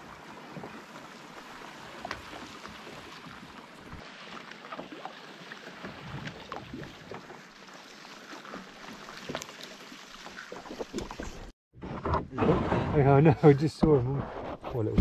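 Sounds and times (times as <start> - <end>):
water lapping along canoe hull: 0.0 - 12.8
small splashes and ticks: 0.1 - 11.5.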